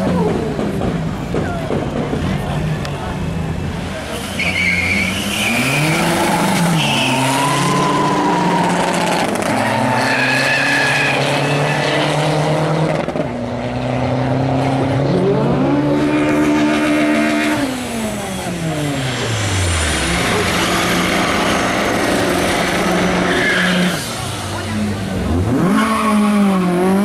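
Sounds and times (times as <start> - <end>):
race car engine revving: 0.0 - 27.0
tyre squeal: 4.2 - 12.2, 23.0 - 24.1.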